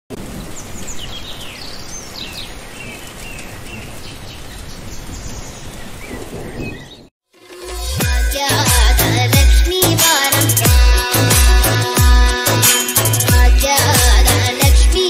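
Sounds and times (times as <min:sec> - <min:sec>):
birds chirping: 0:00.2 - 0:07.1.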